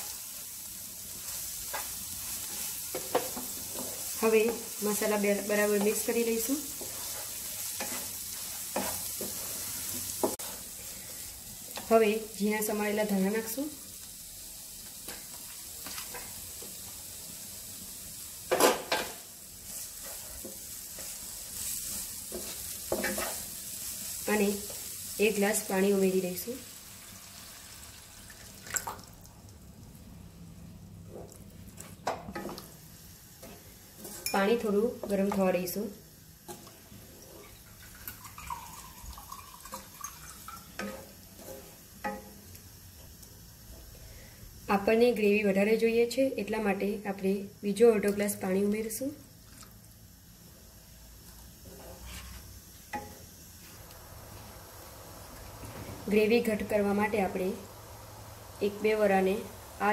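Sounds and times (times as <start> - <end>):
masala sizzling in frying pan: 0.0 - 59.9
wooden spatula scraping pan: 5.6 - 10.7, 19.7 - 23.5, 33.4 - 34.4, 40.8 - 41.8, 51.6 - 52.5.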